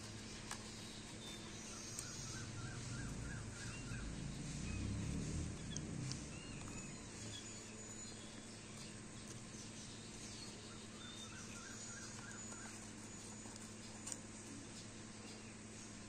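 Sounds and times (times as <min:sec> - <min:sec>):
scissors cutting paper: 0:00.0 - 0:02.2, 0:12.1 - 0:14.6
faint bird chirps: 0:00.0 - 0:16.0
steady low hum: 0:00.0 - 0:16.0.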